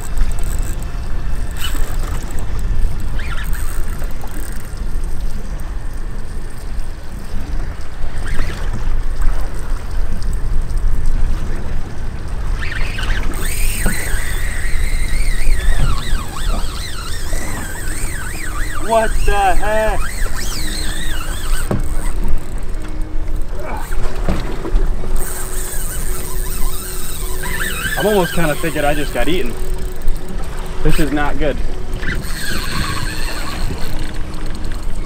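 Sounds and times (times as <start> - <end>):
water around a boat: 0.0 - 35.0
wind: 0.0 - 35.0
wavering high tone: 12.5 - 35.0.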